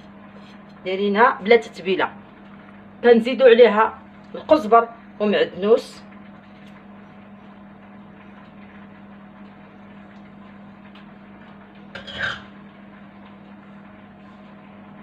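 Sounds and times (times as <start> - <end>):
low steady hum: 0.0 - 15.0
dishes being handled: 12.0 - 12.5
dishes clattering: 12.0 - 12.5.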